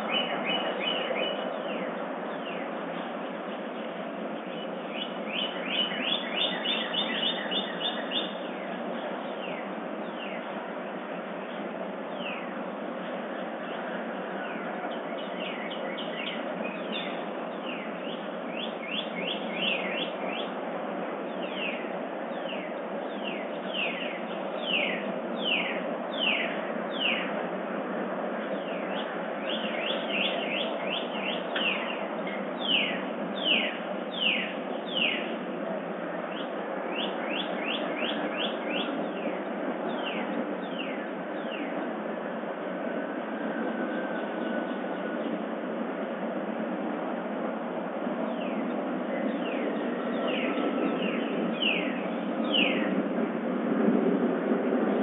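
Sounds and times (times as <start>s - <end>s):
songbirds whistling: 0.0s - 3.6s, 4.4s - 10.6s, 11.5s - 12.6s, 13.3s - 20.6s, 21.3s - 27.4s, 28.4s - 35.4s, 36.2s - 41.9s, 48.2s - 53.0s.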